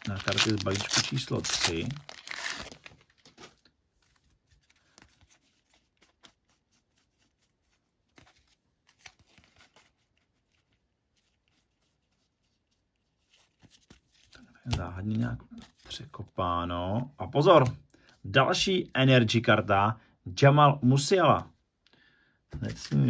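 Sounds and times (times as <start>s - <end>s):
card pack wrapper tearing: 0.0s - 3.4s
cards rustling and clicking: 0.0s - 12.1s, 13.1s - 16.1s.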